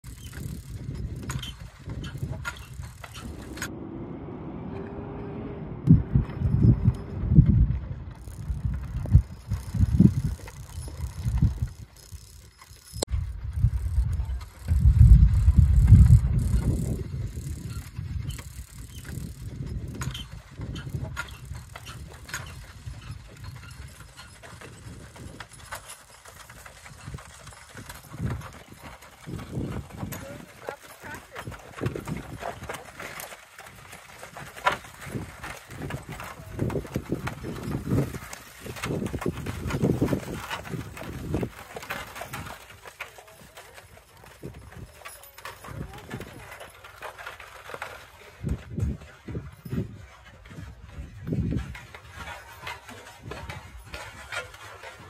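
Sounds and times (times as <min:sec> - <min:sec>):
hoof clops: 0:00.0 - 0:03.9, 0:06.0 - 0:55.0
wheel and harness rattle: 0:00.0 - 0:55.0
low rumble: 0:02.7 - 0:10.1
steady hum: 0:03.0 - 0:07.5
loud low thumps: 0:03.2 - 0:07.6.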